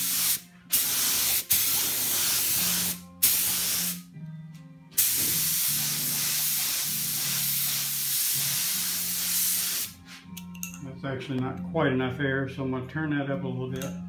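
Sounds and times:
paint spray gun hissing: 0:00.0 - 0:04.0, 0:05.0 - 0:10.0.

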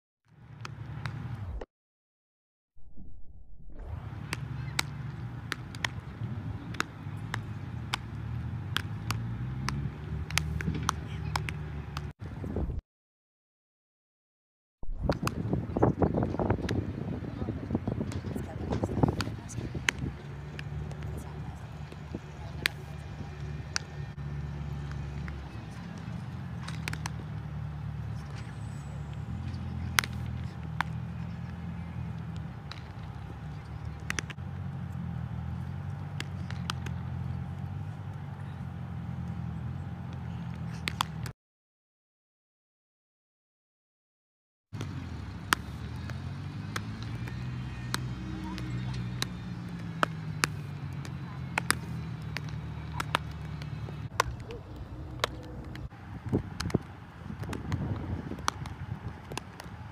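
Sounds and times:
baseballs popping into gloves: 0:00.5 - 0:01.6, 0:04.3 - 0:06.0, 0:06.7 - 0:12.1, 0:14.8 - 0:15.5, 0:18.1 - 0:21.1, 0:24.8 - 0:27.4, 0:29.4 - 0:34.4, 0:35.8 - 0:37.6, 0:40.1 - 0:41.3, 0:44.8 - 0:59.9
steady low rumble: 0:02.8 - 0:04.7, 0:14.8 - 0:22.5
baseball smacking into gloves: 0:08.7 - 0:11.6, 0:26.6 - 0:27.2, 0:40.8 - 0:41.2, 0:45.5 - 0:59.7
wind rumble on microphone: 0:12.2 - 0:12.8, 0:14.8 - 0:23.8, 0:54.1 - 0:59.9.

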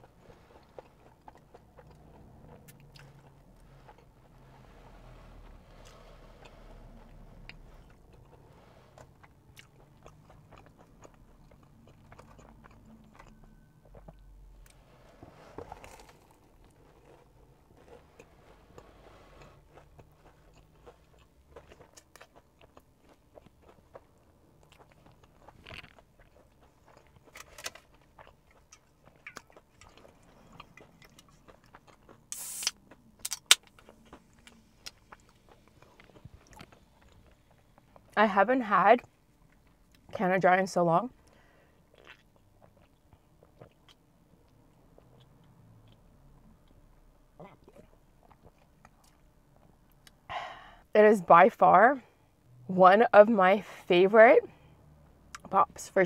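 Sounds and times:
chewing and crunching: 0:00.0 - 0:14.9, 0:15.5 - 0:38.2, 0:38.8 - 0:40.2, 0:41.1 - 0:50.3
soda can opening hiss: 0:32.3 - 0:32.8
sharp can snap: 0:32.3 - 0:33.7.

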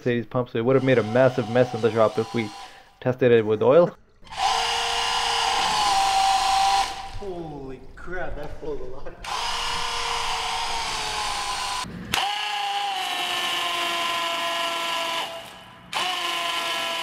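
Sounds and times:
water hissing from pump outlet: 0:00.7 - 0:03.0, 0:04.2 - 0:07.8
impact driver motor whine: 0:04.3 - 0:07.2, 0:09.2 - 0:17.0.

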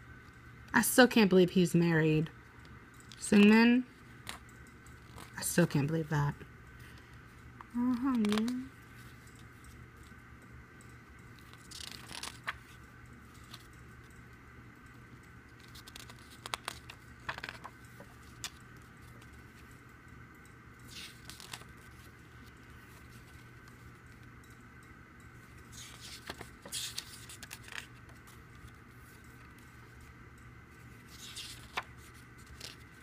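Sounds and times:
faint steady hum: 0:00.0 - 0:33.0
pages being turned: 0:11.4 - 0:12.8, 0:15.5 - 0:19.7, 0:20.9 - 0:24.2, 0:25.7 - 0:30.1, 0:30.8 - 0:33.0.

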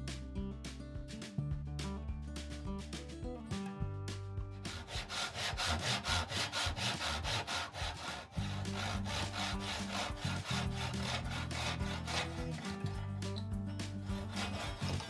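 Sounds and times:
background music: 0:00.0 - 0:15.0
handsaw cutting wood: 0:04.5 - 0:15.0.

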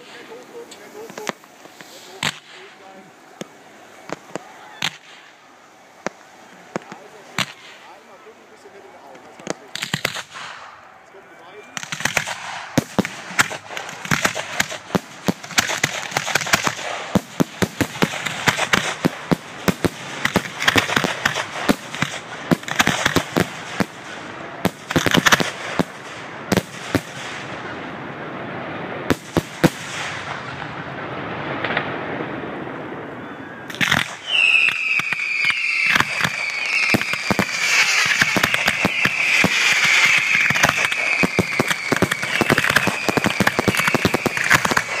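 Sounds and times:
fireworks bangs and crackling: 0:00.0 - 0:45.0
high falling whistle: 0:33.2 - 0:45.0.

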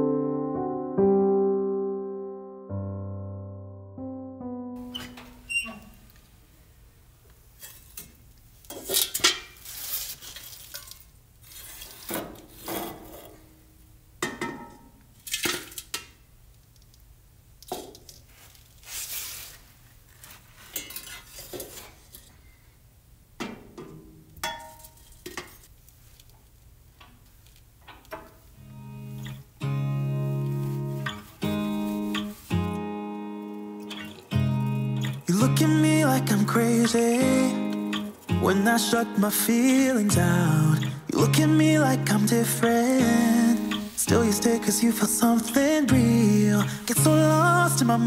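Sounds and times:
scoop scraping ash: 0:08.8 - 0:13.3, 0:42.7 - 0:44.1.

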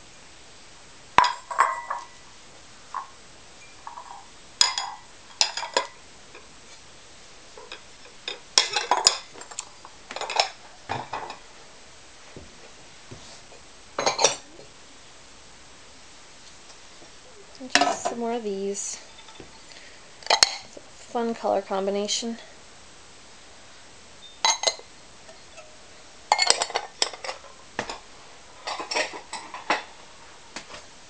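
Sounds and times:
ceramic bowls clinking: 0:01.2 - 0:02.2, 0:02.9 - 0:06.5, 0:07.6 - 0:11.4, 0:14.0 - 0:14.6, 0:17.7 - 0:18.2, 0:19.0 - 0:20.8, 0:24.2 - 0:28.0, 0:28.6 - 0:29.9.

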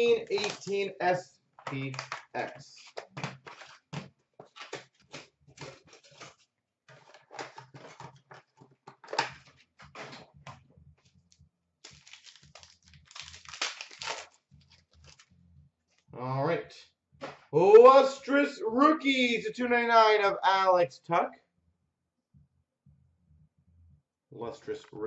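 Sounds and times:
card packs crinkling and tearing: 0:00.1 - 0:00.8, 0:11.8 - 0:15.3.

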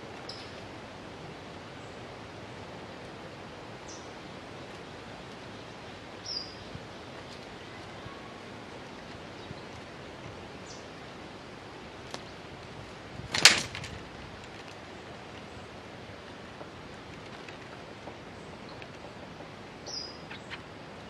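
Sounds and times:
steady background hiss: 0:00.0 - 0:21.0
bird wing flaps: 0:13.2 - 0:14.9, 0:16.9 - 0:18.1.

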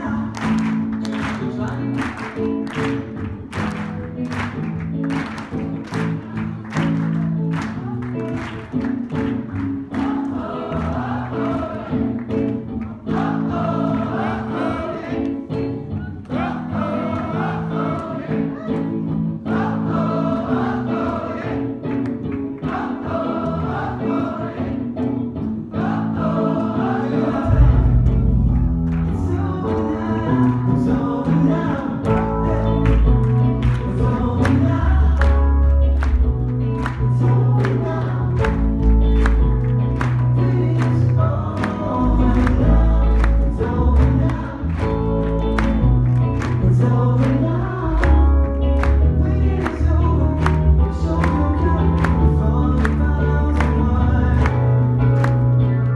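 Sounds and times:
voices singing soul music: 0:00.0 - 0:03.2, 0:09.3 - 0:55.9
heavy bass line: 0:27.3 - 0:40.9.

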